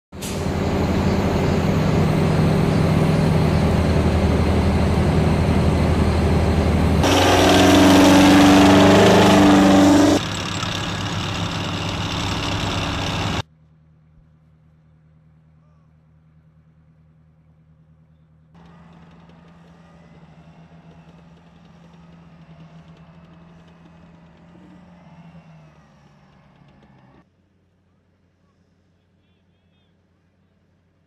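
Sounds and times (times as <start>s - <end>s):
track and road wheels whining: 0.1s - 13.5s, 18.6s - 27.3s
tracked vehicle engine hum: 0.1s - 31.0s.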